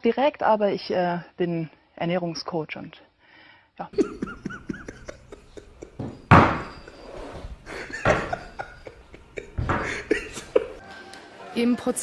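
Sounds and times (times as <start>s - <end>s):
man laughing: 3.9s - 10.8s.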